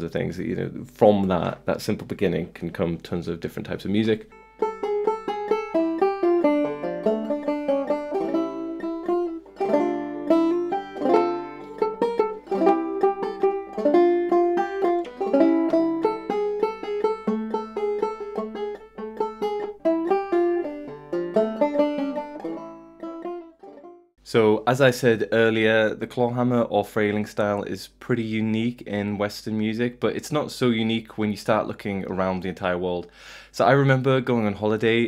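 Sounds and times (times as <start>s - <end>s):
banjo plucked notes: 3.9s - 24.1s.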